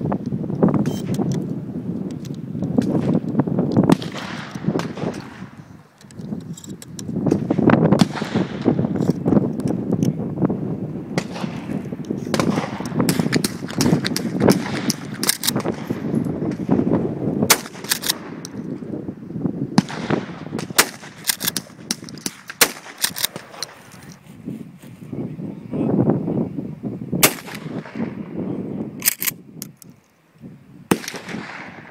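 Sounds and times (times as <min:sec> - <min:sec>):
gunshots: 0:03.9 - 0:05.5, 0:07.3 - 0:08.8, 0:11.2 - 0:11.7, 0:12.3 - 0:16.7, 0:17.5 - 0:18.4, 0:19.8 - 0:23.6, 0:27.2 - 0:28.2, 0:30.9 - 0:31.9.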